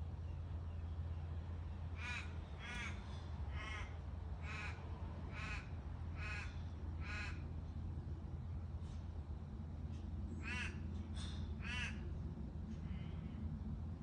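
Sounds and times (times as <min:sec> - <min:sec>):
low background hum: 0:00.0 - 0:14.0
crow cawing: 0:02.0 - 0:07.4, 0:10.4 - 0:10.8, 0:11.6 - 0:12.0.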